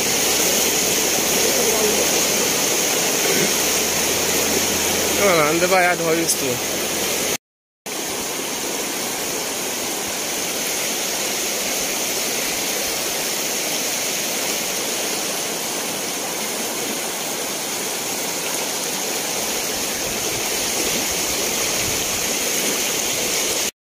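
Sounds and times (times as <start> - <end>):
floodwater rushing: 0.0 - 23.7.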